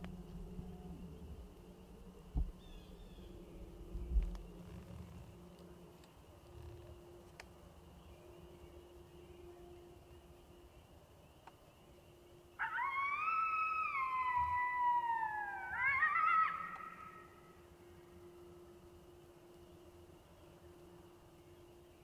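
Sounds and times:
electronic coyote howl call: 12.5 - 18.6.

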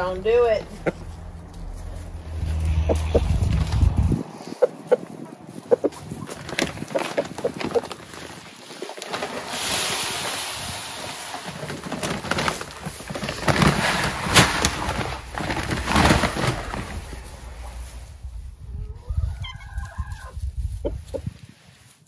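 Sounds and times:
fur rubbing on microphone: 1.6 - 4.9, 19.3 - 22.0
rushing hiss: 9.2 - 12.8.

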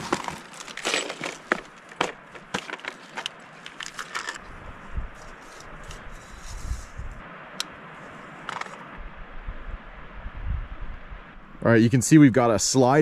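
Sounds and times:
plastic box clicks and rattles: 0.0 - 4.4.

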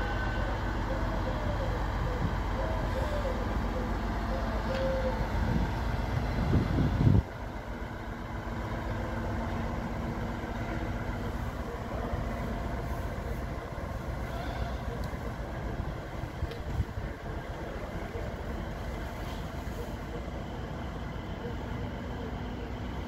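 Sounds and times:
loud rough rumble: 0.0 - 21.4
diesel locomotive engine rumbling: 0.0 - 23.0.

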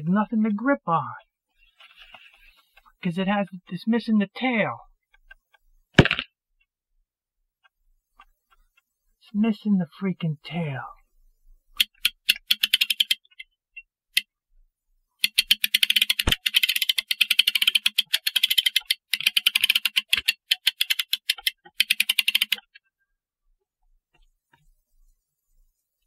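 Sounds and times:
ratchet clicking rapidly: 11.8 - 13.3, 15.2 - 22.7.

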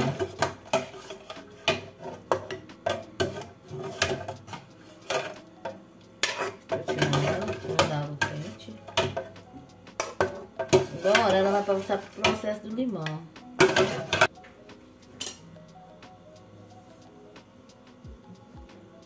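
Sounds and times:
metal ladle scraping pots: 0.0 - 5.4, 6.2 - 9.4, 10.0 - 12.6, 13.6 - 14.3.

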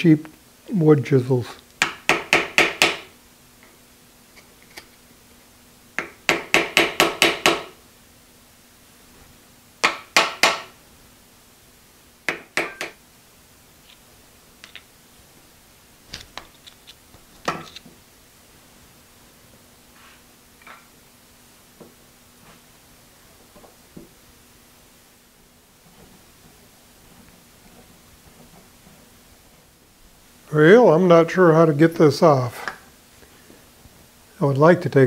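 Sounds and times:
hammer striking metal chisel: 1.8 - 3.1, 6.0 - 7.7, 9.8 - 10.7, 12.3 - 13.0.

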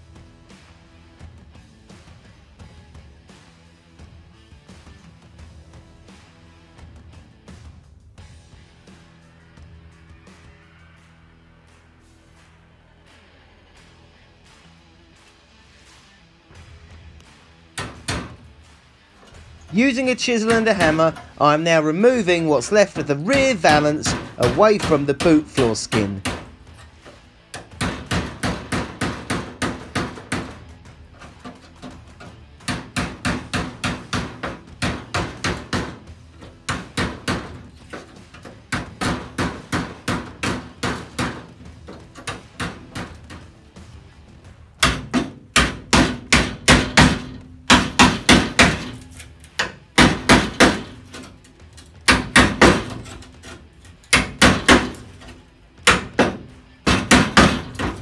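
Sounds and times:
hammer striking chisel on steel: 19.3 - 30.6, 31.2 - 43.6, 44.8 - 58.0.

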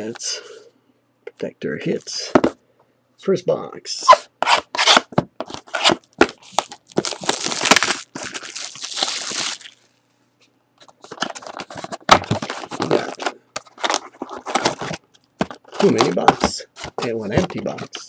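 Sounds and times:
plastic wrap crinkling and tearing: 5.6 - 10.0.

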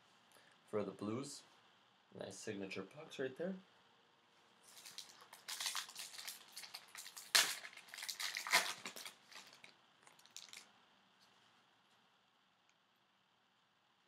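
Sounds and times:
foil wrapper tearing and crinkling: 4.7 - 10.7.

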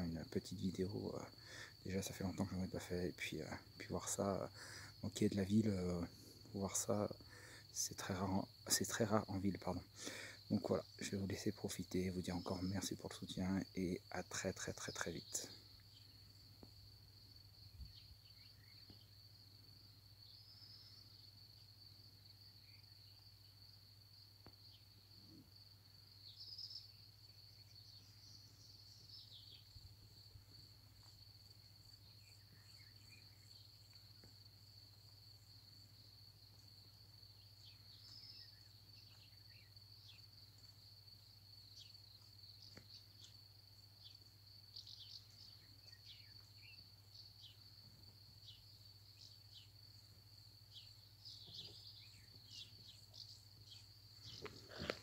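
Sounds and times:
crickets trilling: 0.0 - 55.0
bird chirps: 44.0 - 49.8, 50.7 - 55.0.

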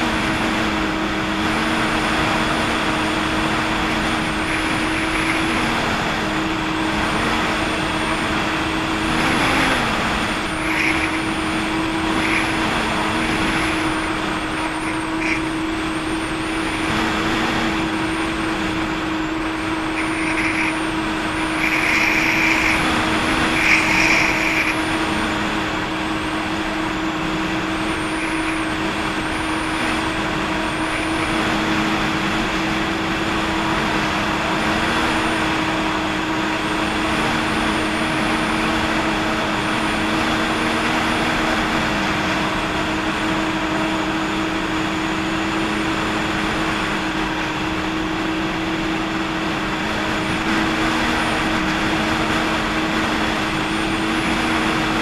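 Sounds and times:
jet ski engine running: 0.0 - 55.0.

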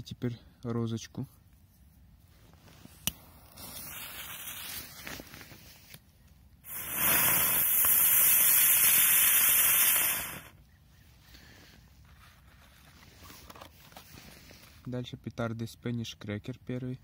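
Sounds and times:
firework hissing: 3.4 - 5.6, 6.6 - 10.6.

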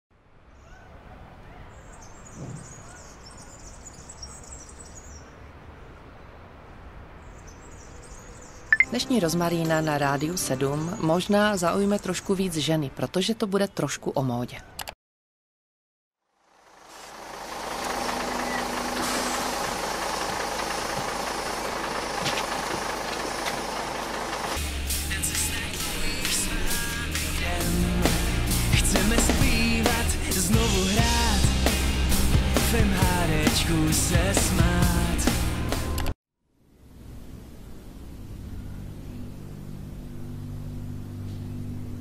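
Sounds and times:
small birds twittering: 0.5 - 6.5, 7.2 - 8.9
vehicle interior rumble and hiss: 16.5 - 26.9.

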